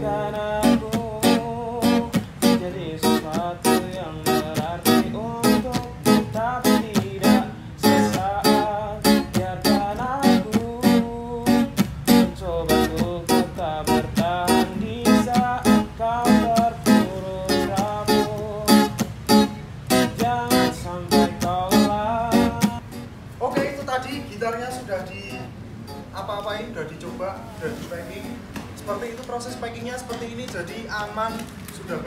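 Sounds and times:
person singing: 0:00.0 - 0:22.8
strummed guitar: 0:00.0 - 0:24.0.

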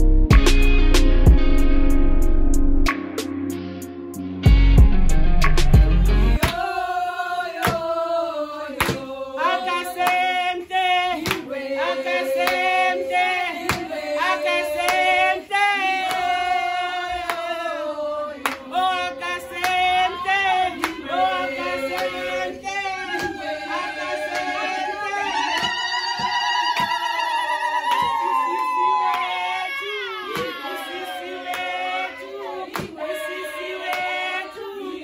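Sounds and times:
women singing together: 0:06.4 - 0:35.0
woman singing into microphone: 0:18.6 - 0:35.0.

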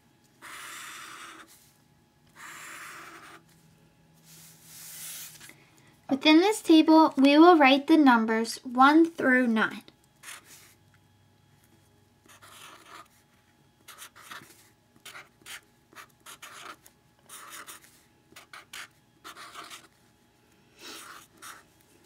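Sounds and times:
marker scratching on paper: 0:00.4 - 0:01.7, 0:02.4 - 0:03.4, 0:04.3 - 0:05.4, 0:10.2 - 0:10.7, 0:12.2 - 0:13.2, 0:13.9 - 0:19.9, 0:20.9 - 0:21.6.

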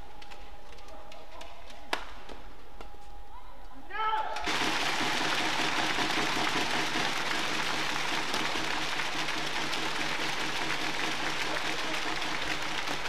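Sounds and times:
crowd noise in arena: 0:00.0 - 0:13.0.

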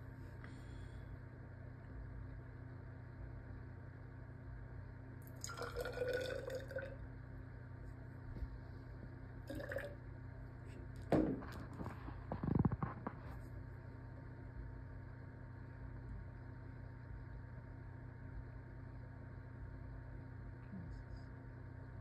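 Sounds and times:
water trickling into a cylinder: 0:05.2 - 0:07.1, 0:09.4 - 0:10.0
glass cup knocking on table: 0:11.1 - 0:11.7.

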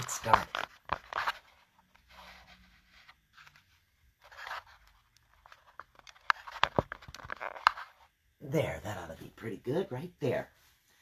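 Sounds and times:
camera handling scraping and rustling: 0:00.0 - 0:08.2.

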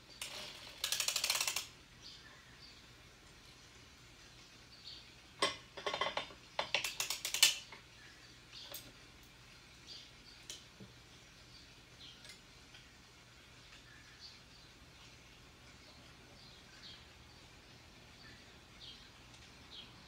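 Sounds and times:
knitting machine parts clicking: 0:00.2 - 0:01.8, 0:06.6 - 0:07.8.

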